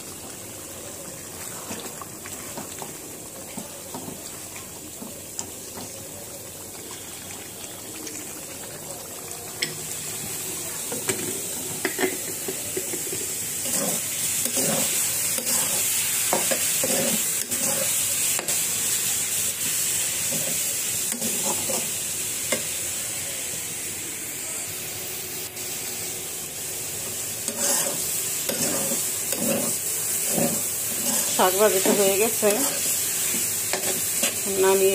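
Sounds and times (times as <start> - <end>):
leafy greens sizzling in a pan: 0.0 - 34.9
metal spatula scraping a pan: 13.6 - 18.5, 27.5 - 34.4.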